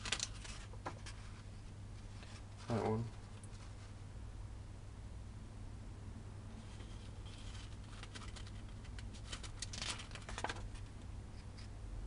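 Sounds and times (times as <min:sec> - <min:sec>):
paper page turning: 0:00.0 - 0:01.4, 0:06.7 - 0:10.9.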